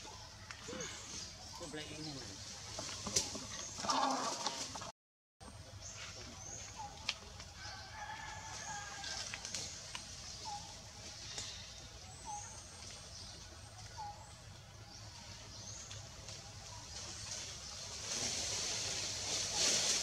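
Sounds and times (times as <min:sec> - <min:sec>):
low steady rumble: 0:05.4 - 0:20.0.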